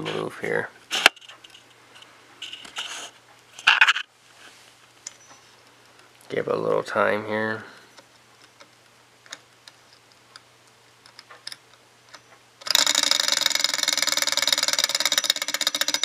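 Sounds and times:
flywheel clicks: 12.1s - 16.0s
model engine clattering: 12.6s - 16.0s.

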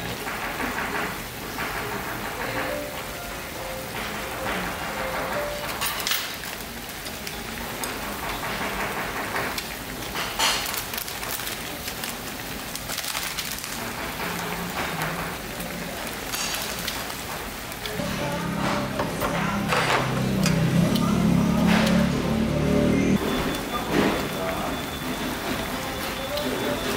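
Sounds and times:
stew boiling and bubbling: 0.0s - 26.9s.

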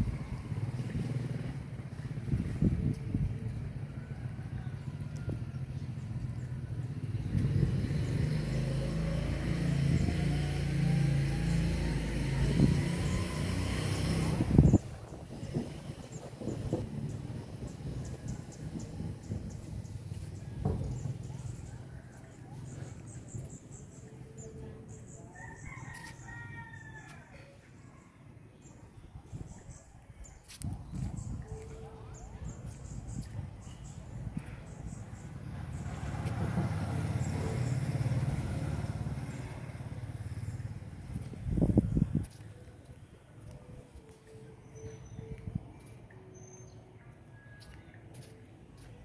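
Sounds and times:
faint rooster crowing: 3.6s - 6.8s, 20.2s - 23.2s, 25.3s - 28.1s.

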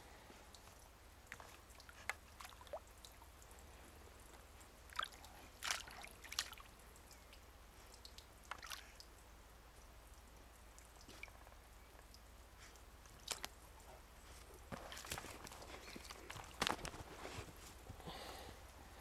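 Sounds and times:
dog splashing water: 1.3s - 6.9s, 14.4s - 17.4s.

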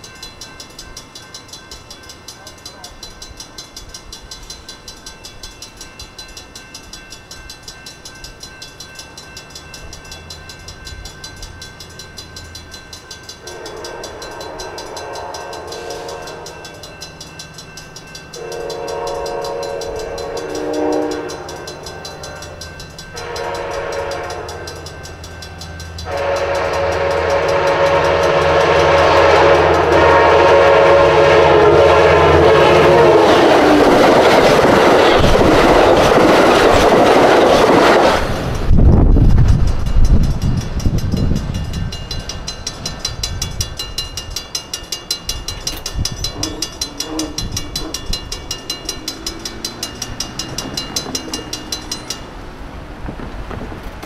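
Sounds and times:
crossing bell ringing: 0.0s - 52.8s
locomotive rumble: 8.3s - 54.0s
locomotive horn: 13.4s - 16.8s, 18.4s - 25.2s, 26.0s - 34.1s, 46.3s - 48.0s.

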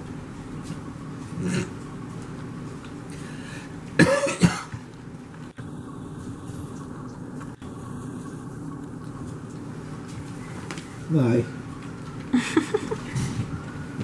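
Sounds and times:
person coughing: 4.0s - 4.8s.

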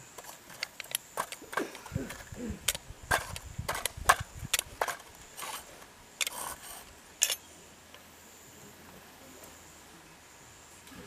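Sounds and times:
hard objects clicking and knocking: 0.1s - 6.6s.

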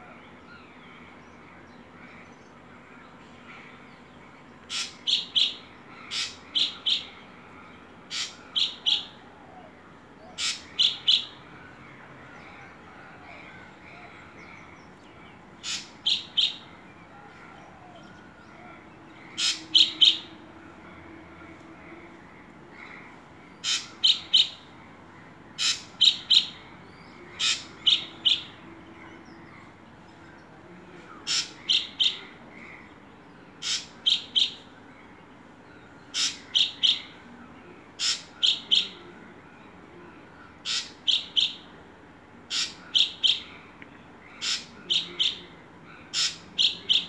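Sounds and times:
bird calling sharp notes: 4.7s - 7.2s, 8.1s - 9.3s, 10.2s - 11.4s, 15.6s - 16.6s, 19.3s - 20.3s, 23.6s - 24.6s, 25.6s - 26.5s, 31.2s - 32.2s, 38.0s - 39.0s, 40.6s - 41.6s, 42.5s - 43.5s, 46.1s - 47.0s.

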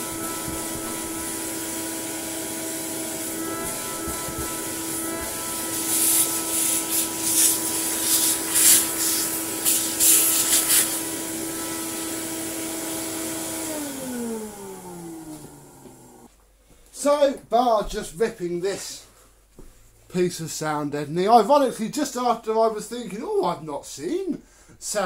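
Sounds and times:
vacuum nozzle sucking hisses: 0.0s - 12.2s
vacuum cleaner motor whine: 0.0s - 16.3s
vacuum motor winding down: 0.0s - 16.3s.

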